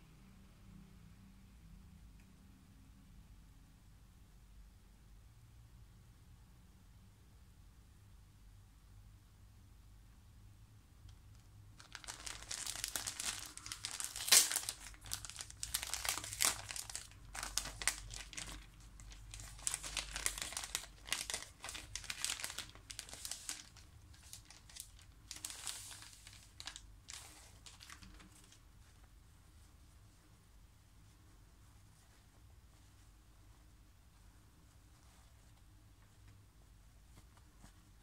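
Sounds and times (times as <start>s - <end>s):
plastic pouch crinkling: 11.8s - 28.6s.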